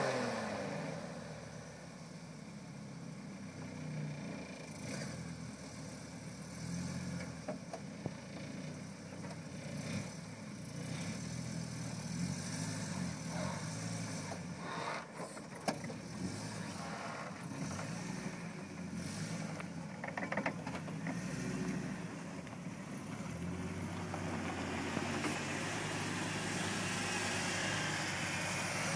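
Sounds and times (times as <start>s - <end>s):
van engine at low revs: 0.0s - 28.9s
hiss: 13.3s - 15.4s.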